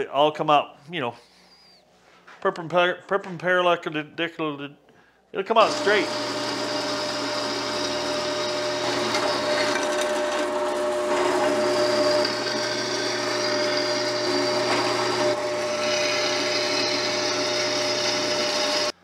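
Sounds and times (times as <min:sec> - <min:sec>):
drill bit cutting metal: 0:05.6 - 0:19.0
drill press motor hum: 0:05.6 - 0:19.0.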